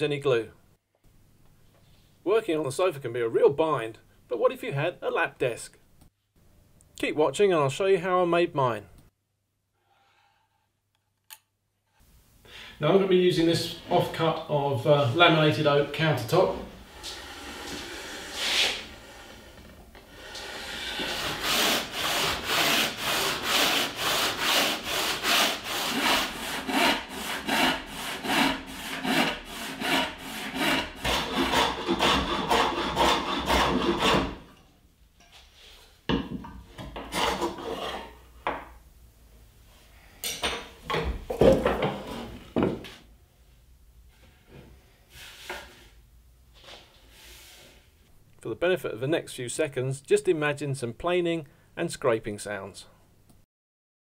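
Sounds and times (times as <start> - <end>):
handsaw cutting wood: 16.8 - 34.5, 37.1 - 38.1.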